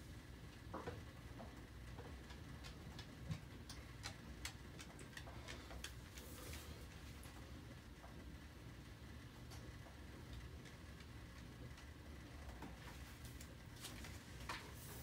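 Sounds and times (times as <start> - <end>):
low steady hum: 0.0 - 15.0
light ticks and clicks: 1.4 - 6.7.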